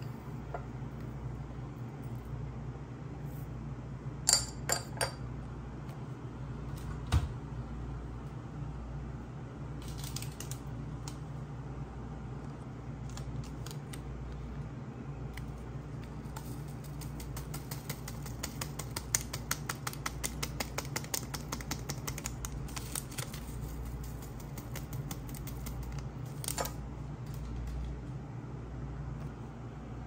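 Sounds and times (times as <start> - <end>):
low steady hum: 0.0 - 30.0
paper sachet crinkling: 22.1 - 26.6.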